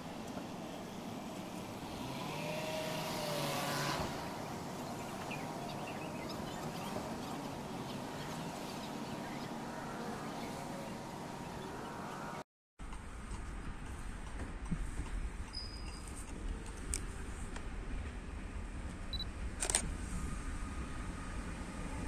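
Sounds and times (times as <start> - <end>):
faint wheel squeals: 15.5 - 16.2.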